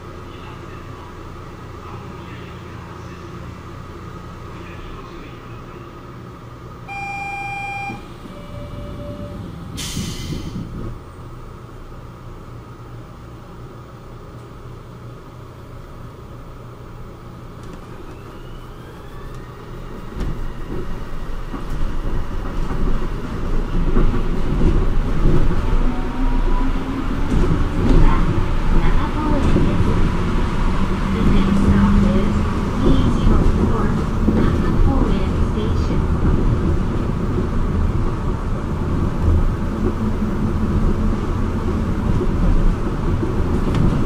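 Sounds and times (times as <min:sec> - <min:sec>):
train humming at station: 0:00.0 - 0:44.0
electric motor whine: 0:15.9 - 0:22.4
rumble of tyres on guideway: 0:17.6 - 0:44.0.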